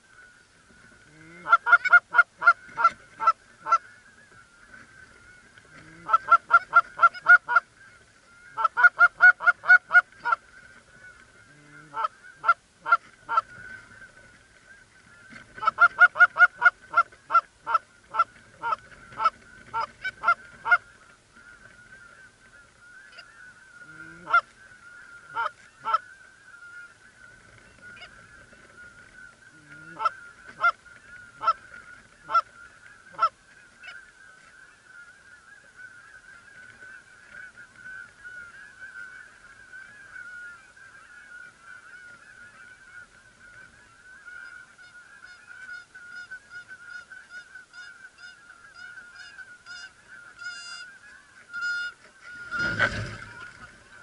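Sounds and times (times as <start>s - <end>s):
geese honking: 0.0s - 54.0s
flock honking chorus: 44.8s - 53.6s.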